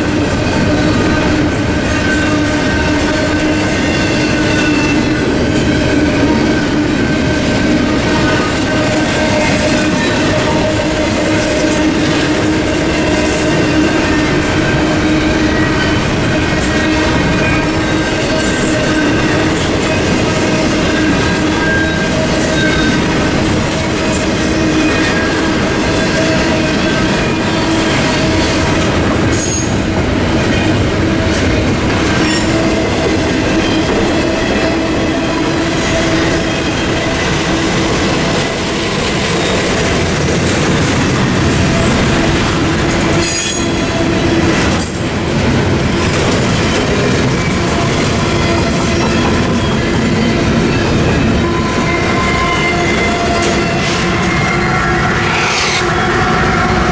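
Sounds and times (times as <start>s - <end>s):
freight train wheels rumbling on rail: 0.0s - 56.9s
high wheel squeals: 0.4s - 29.8s, 43.2s - 45.2s, 46.5s - 56.8s.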